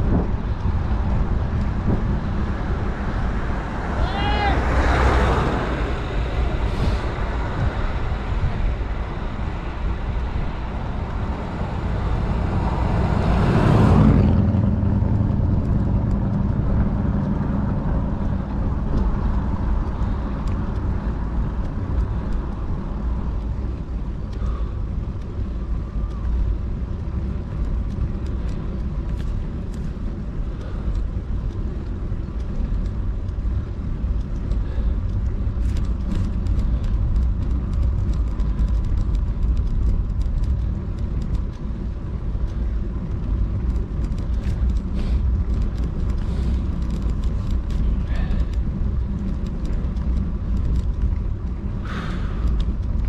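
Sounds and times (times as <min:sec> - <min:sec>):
low road rumble: 0:00.0 - 0:53.0
wind rushing hiss: 0:01.8 - 0:14.0
faint ticks: 0:18.2 - 0:53.0.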